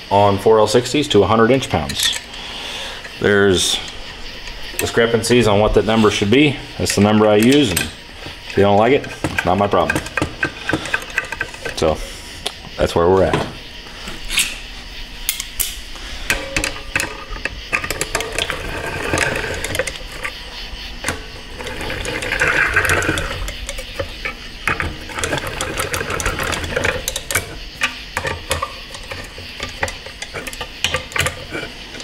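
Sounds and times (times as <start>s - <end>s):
small metal clicks: 15.2s - 32.0s.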